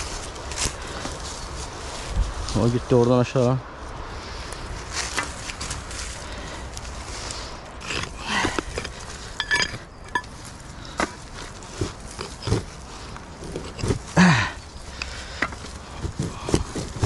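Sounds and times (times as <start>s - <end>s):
scraping and rustling of soil and leaves: 0.0s - 17.0s
stone knocks and clinks: 8.8s - 10.3s.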